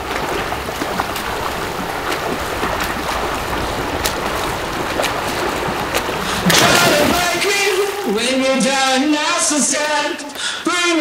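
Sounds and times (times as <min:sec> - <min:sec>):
wind noise: 0:00.0 - 0:08.2
moving water: 0:00.0 - 0:11.0.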